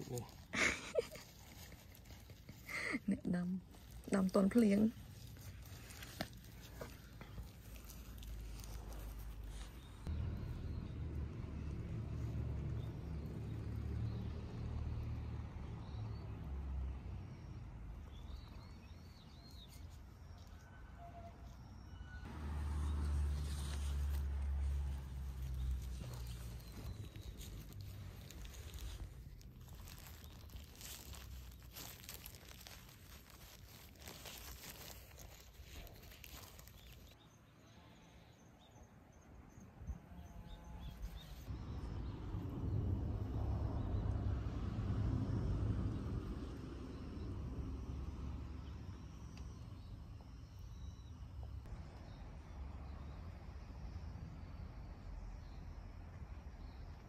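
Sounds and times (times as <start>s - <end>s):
plastic gloves crinkling: 0.0s - 10.1s, 23.0s - 37.2s
soil rustling: 0.0s - 15.2s, 17.3s - 37.3s
low rumble: 41.5s - 50.6s.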